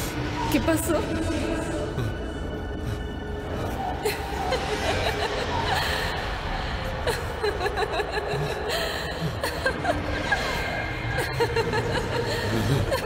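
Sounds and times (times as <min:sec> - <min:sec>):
woman laughing: 0:04.0 - 0:13.0.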